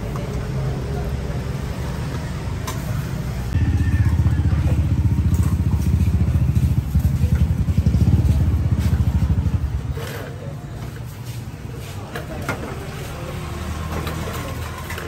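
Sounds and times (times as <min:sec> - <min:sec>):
motorcycle engine idling: 0:03.6 - 0:10.0.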